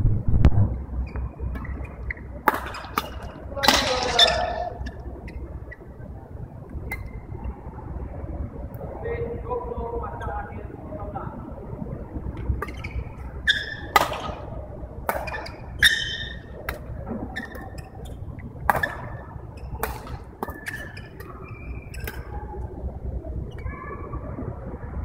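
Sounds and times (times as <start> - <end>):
low rumble of sports hall: 0.0 - 25.0
shoes squeaking on court: 1.1 - 5.9, 12.6 - 14.4, 15.2 - 22.4
rackets hitting shuttlecock: 1.6 - 4.9, 12.4 - 22.4.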